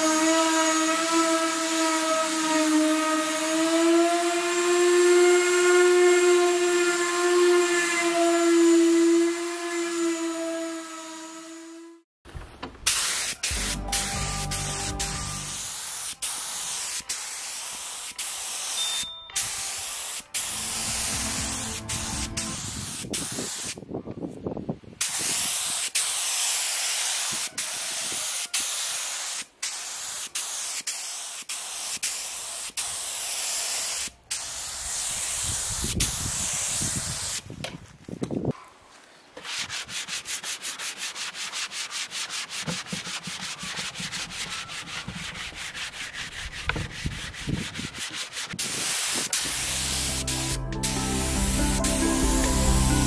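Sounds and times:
spray gun hissing: 0:12.9 - 0:23.8, 0:25.0 - 0:37.5, 0:48.6 - 0:53.0.

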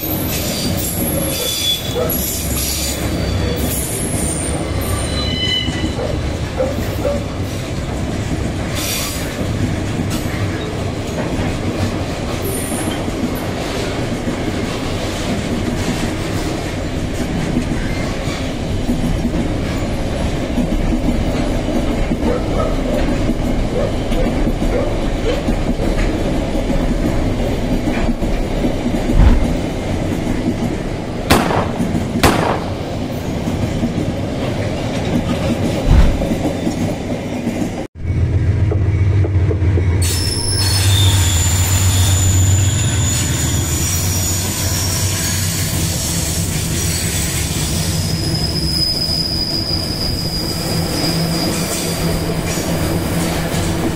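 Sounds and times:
train wheels rumbling on rails: 0:00.0 - 0:53.9
sharp knocks: 0:29.1 - 0:29.6.

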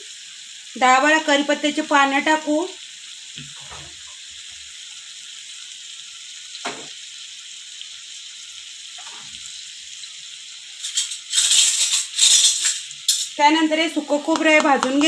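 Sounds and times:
food sizzling in a pan: 0:00.0 - 0:15.0
utensils clattering: 0:10.8 - 0:13.4.

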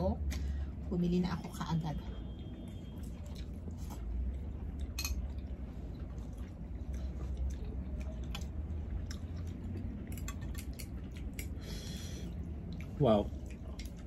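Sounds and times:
steady low hum: 0:00.0 - 0:14.0
slurping and chewing: 0:02.9 - 0:14.0
chopsticks clicking on bowls: 0:10.0 - 0:11.6.

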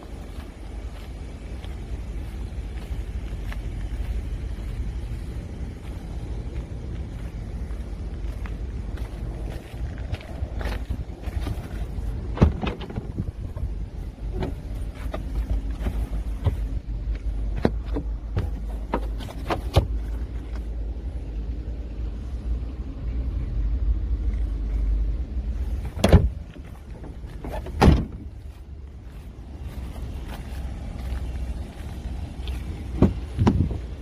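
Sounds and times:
steady low rumble: 0:00.0 - 0:34.0
handling clicks and knocks: 0:10.7 - 0:20.7, 0:32.4 - 0:34.0
trunk floor panel thumps: 0:25.9 - 0:26.4, 0:27.4 - 0:28.2, 0:32.9 - 0:33.8.

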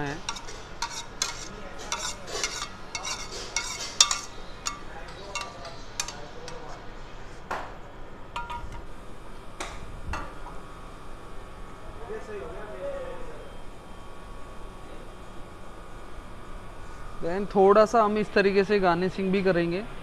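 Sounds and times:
utensil scraping and clinking pan: 0:00.2 - 0:06.7.

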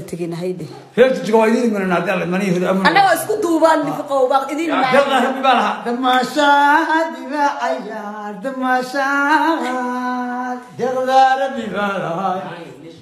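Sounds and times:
voices singing unaccompanied: 0:02.8 - 0:13.0.

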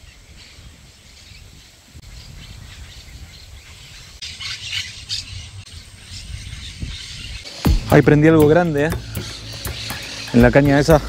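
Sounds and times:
wind rumble on microphone: 0:00.0 - 0:07.5.

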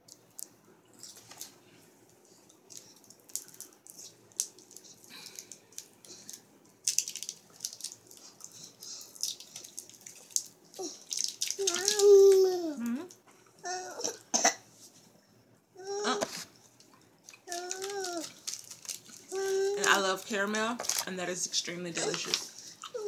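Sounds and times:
wrapper crinkling: 0:00.4 - 0:12.5, 0:17.2 - 0:23.0.

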